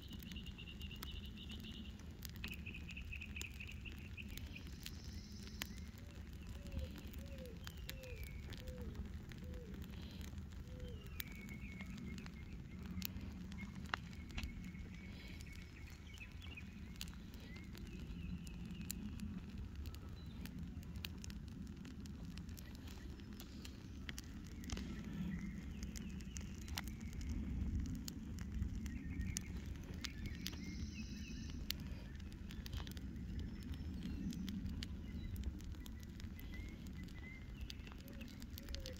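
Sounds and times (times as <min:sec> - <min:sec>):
fire crackles and pops: 0:00.0 - 0:38.9
flames fluttering: 0:00.0 - 0:38.9.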